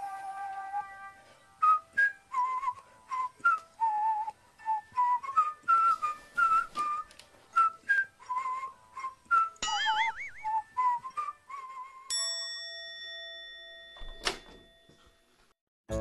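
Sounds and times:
whistled melody: 0:00.0 - 0:12.1.

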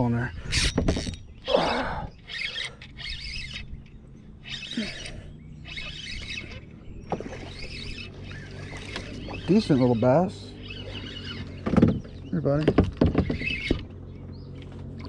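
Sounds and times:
fishing reel whirring: 0:00.3 - 0:11.7.

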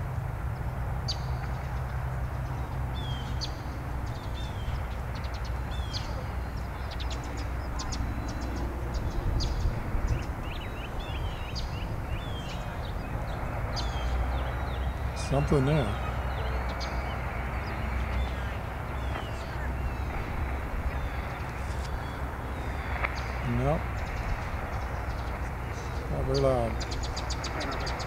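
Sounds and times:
radio static hiss: 0:15.1 - 0:28.0.

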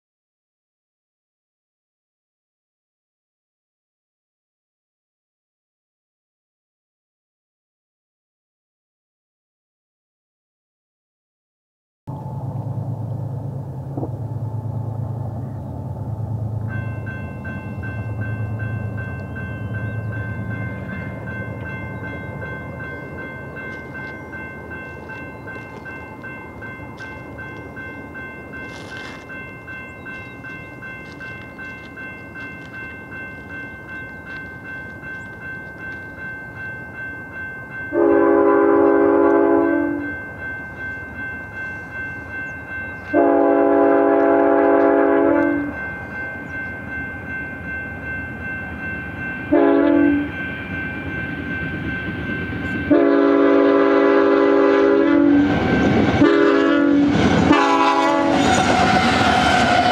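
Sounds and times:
locomotive engines and wheels: 0:12.1 - 0:59.9
crossing bells ringing: 0:16.5 - 0:59.9
locomotive horn blowing: 0:37.9 - 0:40.2, 0:43.1 - 0:45.8, 0:49.5 - 0:50.4, 0:52.8 - 0:55.6, 0:56.2 - 0:59.9.

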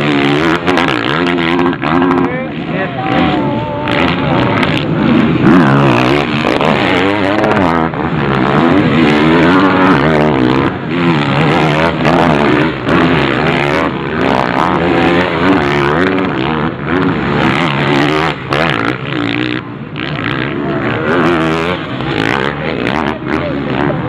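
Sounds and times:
motocross bike engines revving: 0:00.0 - 0:24.0.

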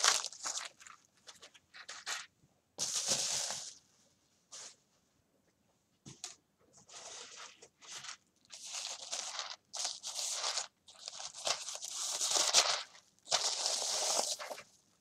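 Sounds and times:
tissue paper crinkling: 0:00.0 - 0:03.8, 0:06.9 - 0:14.7.

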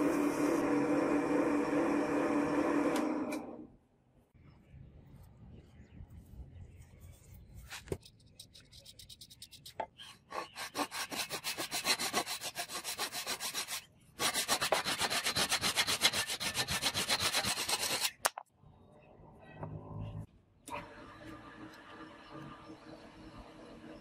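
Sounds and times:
hand saw cutting wood: 0:10.3 - 0:18.2.

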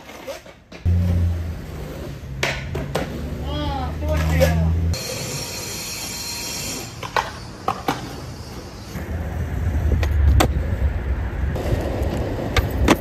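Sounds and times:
skateboard wheels rolling on asphalt: 0:00.0 - 0:13.0
skateboard clacks: 0:02.3 - 0:03.4.

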